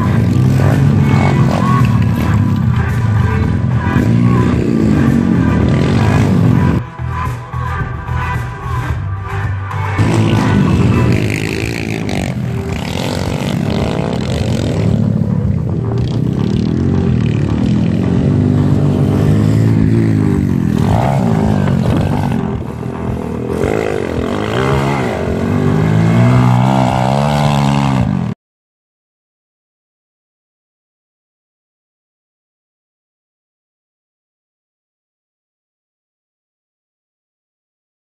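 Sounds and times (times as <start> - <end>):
pit bike engines revving: 0.0 - 28.4.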